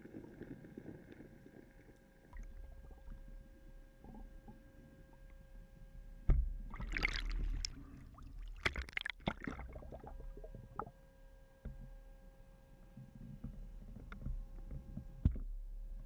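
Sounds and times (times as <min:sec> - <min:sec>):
low underwater rumble: 0:00.0 - 0:11.0
faint steady hum: 0:00.0 - 0:16.0
water splashing and sloshing: 0:06.2 - 0:10.9.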